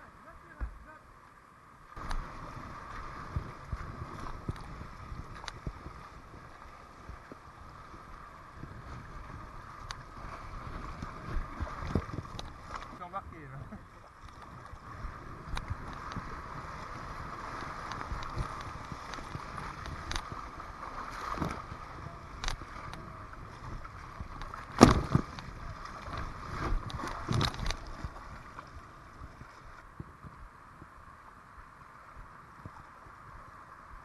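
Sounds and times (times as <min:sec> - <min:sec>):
paddle strokes in water: 0:02.0 - 0:31.5
sharp knocks and splashes: 0:10.7 - 0:13.0, 0:17.5 - 0:21.7, 0:23.8 - 0:28.2.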